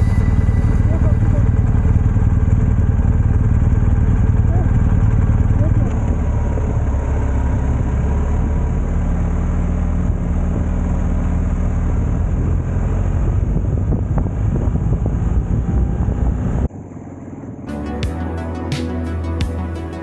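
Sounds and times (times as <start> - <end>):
motorcycle engine running: 0.0 - 20.0
wind noise: 12.0 - 16.7.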